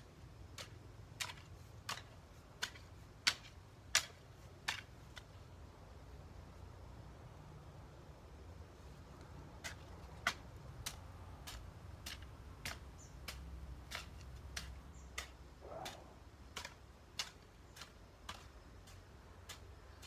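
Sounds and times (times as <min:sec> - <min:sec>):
hoe chopping into dry soil: 0:00.4 - 0:05.4, 0:09.4 - 0:20.0.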